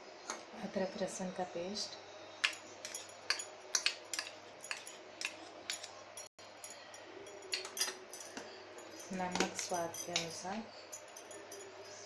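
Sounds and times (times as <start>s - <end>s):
steel spoon clinking on bowls: 2.4s - 12.0s.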